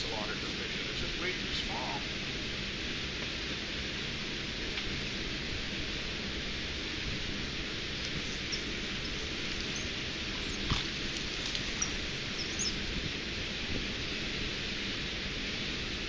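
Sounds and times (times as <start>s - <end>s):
high bird chirps: 8.1s - 12.8s.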